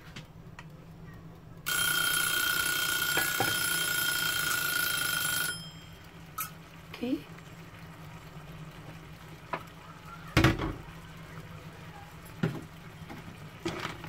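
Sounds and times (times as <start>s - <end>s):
kitchen timer bell ringing: 1.7s - 6.6s.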